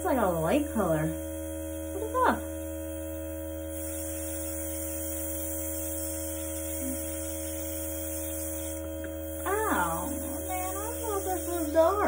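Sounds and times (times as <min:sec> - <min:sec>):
compressor humming: 0:00.0 - 0:12.0
airbrush air hiss: 0:03.0 - 0:12.0.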